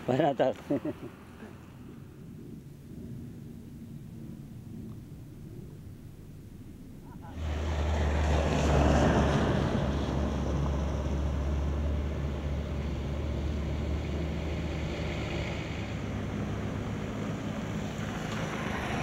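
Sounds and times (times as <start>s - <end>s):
motorcycle: 7.2s - 19.0s
vehicles passing on wet road: 7.3s - 19.0s.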